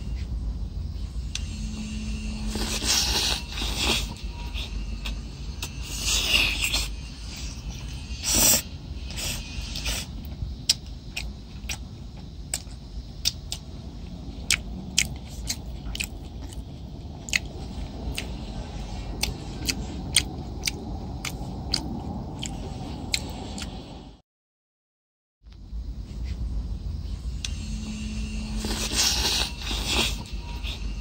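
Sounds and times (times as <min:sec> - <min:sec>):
steady low rumble: 0:00.0 - 0:24.2, 0:25.5 - 0:31.0.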